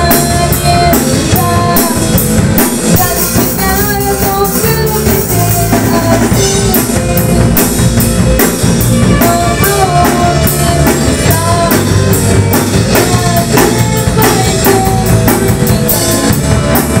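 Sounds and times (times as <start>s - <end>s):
rock band playing live: 0.0s - 17.0s
violin melody: 1.4s - 14.5s.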